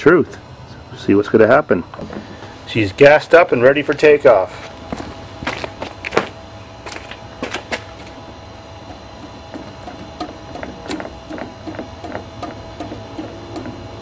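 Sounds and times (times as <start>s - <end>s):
footsteps on concrete: 3.9s - 8.4s.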